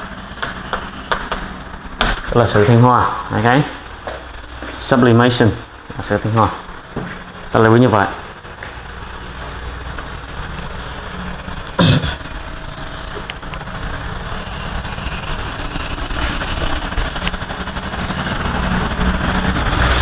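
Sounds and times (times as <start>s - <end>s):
steady low rumble: 0.0s - 20.0s
sharp knock: 0.4s - 1.4s.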